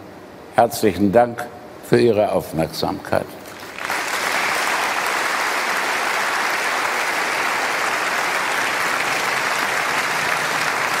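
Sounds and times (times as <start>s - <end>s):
large audience applauding: 3.5s - 11.0s.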